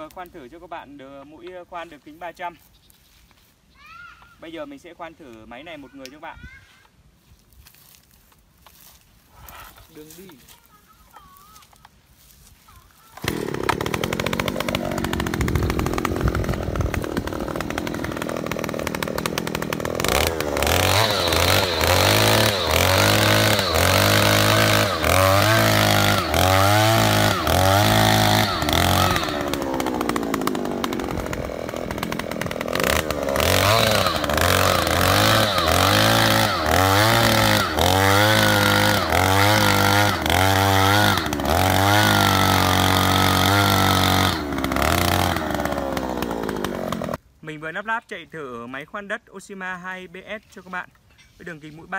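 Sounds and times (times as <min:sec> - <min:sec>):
earth auger engine revving: 0:13.2 - 0:47.2.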